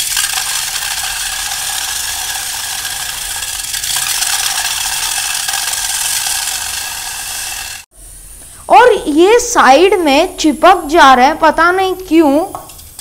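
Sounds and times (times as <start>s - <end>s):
water beads sizzling on hot pan: 0.0s - 8.9s.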